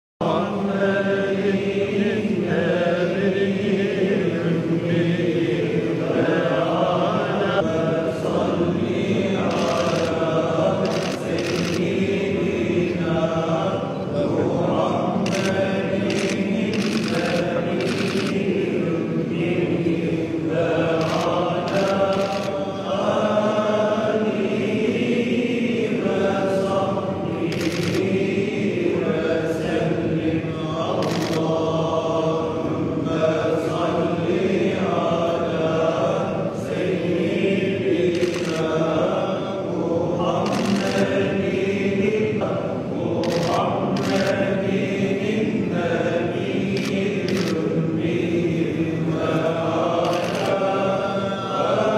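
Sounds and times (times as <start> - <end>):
men chanting a religious recitation: 0.2 - 51.9
sharp clicks: 9.5 - 11.9, 15.3 - 18.4, 21.0 - 22.5, 27.5 - 28.0, 50.1 - 50.6.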